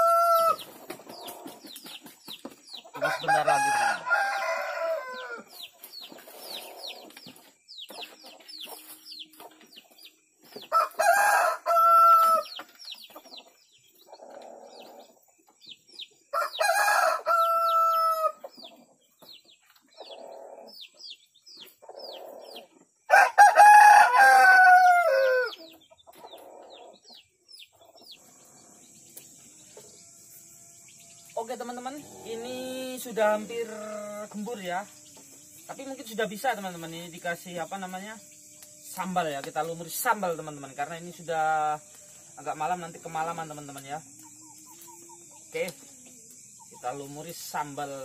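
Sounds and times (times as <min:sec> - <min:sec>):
rooster crowing: 0:00.0 - 0:00.7, 0:03.0 - 0:05.6, 0:10.7 - 0:12.6, 0:16.3 - 0:18.4, 0:23.1 - 0:25.7
faint high chirping: 0:00.0 - 0:23.2, 0:25.1 - 0:48.0.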